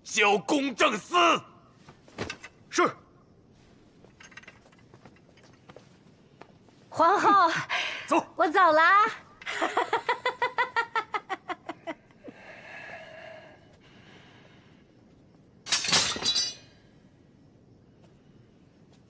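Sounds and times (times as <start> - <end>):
woman laughing loudly: 7.0 - 7.7, 9.4 - 12.0.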